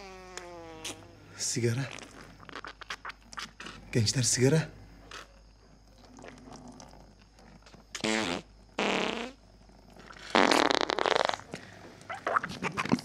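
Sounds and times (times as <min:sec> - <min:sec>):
farts: 0:00.0 - 0:01.1, 0:01.9 - 0:03.8, 0:07.9 - 0:09.4, 0:10.0 - 0:13.0.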